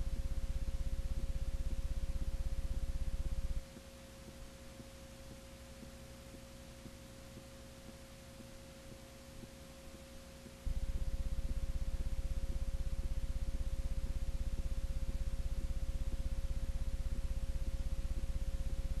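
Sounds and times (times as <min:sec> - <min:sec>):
low electrical buzz: 0:00.0 - 0:19.0
steady electrical hum: 0:00.0 - 0:19.0.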